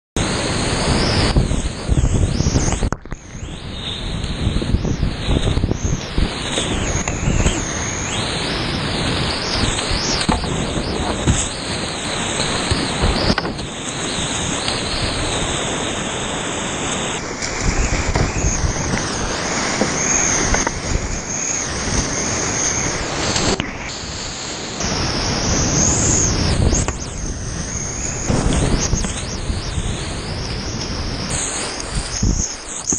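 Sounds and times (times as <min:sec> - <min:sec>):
whitewater rapids rushing: 0:06.1 - 0:26.8.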